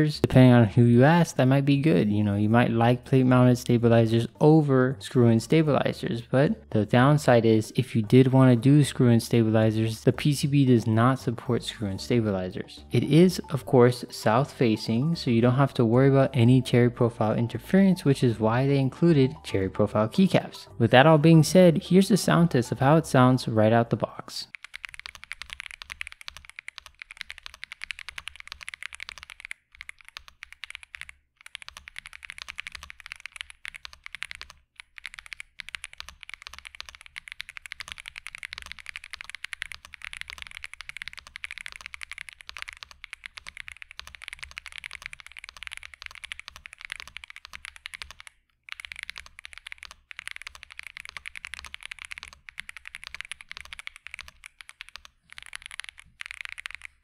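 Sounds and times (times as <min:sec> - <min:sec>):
mechanical keyboard typing: 0:24.5 - 0:57.0.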